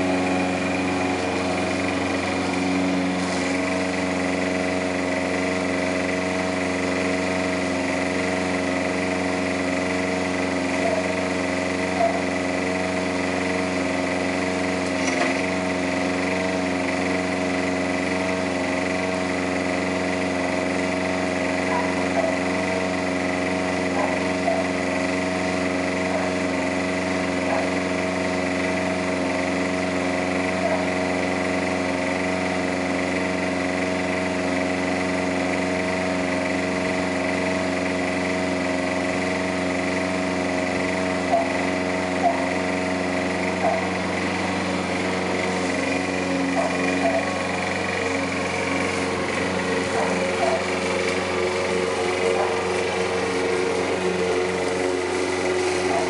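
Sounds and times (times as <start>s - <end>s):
lawn mower engine running: 0.0s - 56.0s.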